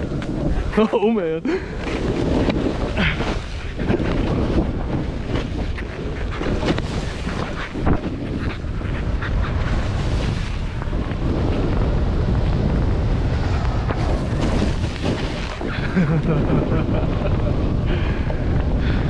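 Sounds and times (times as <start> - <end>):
wind buffeting microphone: 0.0 - 19.0
skis running over snow: 1.5 - 19.0
ski knocks and scrapes: 1.8 - 8.6, 13.8 - 16.2.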